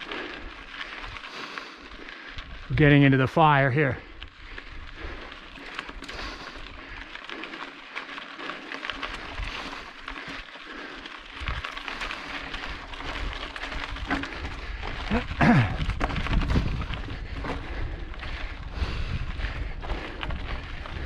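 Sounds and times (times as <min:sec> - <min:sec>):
bike tyres crunching over gravel: 0:00.0 - 0:21.0
wind buffeting microphone: 0:02.3 - 0:07.0, 0:08.9 - 0:10.4, 0:11.3 - 0:21.0.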